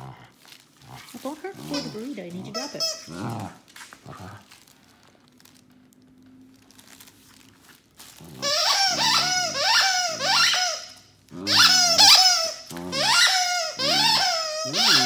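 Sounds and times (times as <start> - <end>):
foil wrapper crinkling: 0.0 - 15.0
dog making high-pitched voice-like sounds: 11.4 - 15.0.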